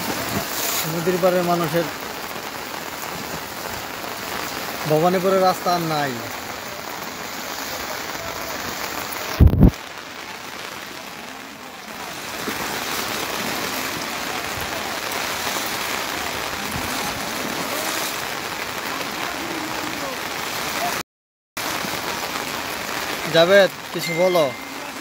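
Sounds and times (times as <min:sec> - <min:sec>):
flooded river rushing: 0:00.0 - 0:21.0, 0:21.6 - 0:25.0
heavy rain: 0:00.0 - 0:21.0, 0:21.6 - 0:25.0
brief low thump: 0:09.4 - 0:09.7.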